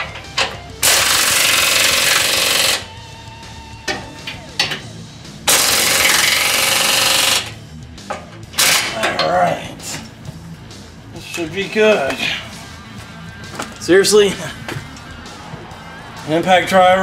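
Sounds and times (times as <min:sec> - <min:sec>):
impact driver hammering: 0:00.0 - 0:02.9, 0:05.5 - 0:07.6.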